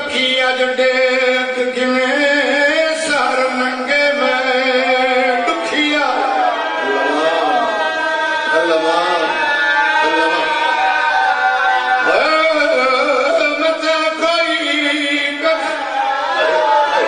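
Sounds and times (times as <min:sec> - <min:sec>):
man chanting through microphone: 0:00.0 - 0:07.7, 0:12.0 - 0:17.0.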